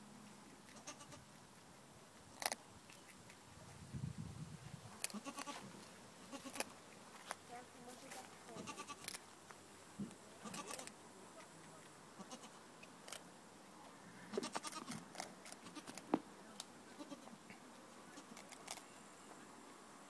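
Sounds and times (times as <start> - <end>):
goats bleating: 8.6 - 9.0, 10.4 - 10.9, 12.2 - 12.6, 14.3 - 14.9, 17.0 - 17.4.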